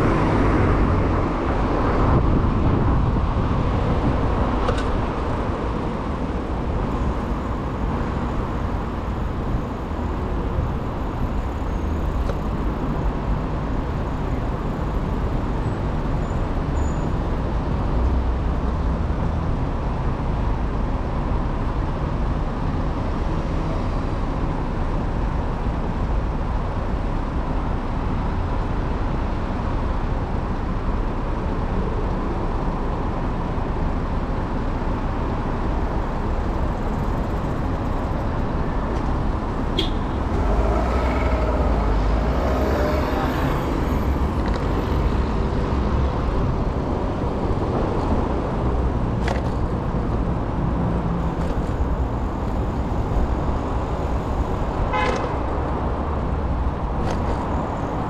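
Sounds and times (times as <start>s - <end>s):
street traffic: 0.0s - 58.0s
loud passing vehicle: 39.4s - 49.2s.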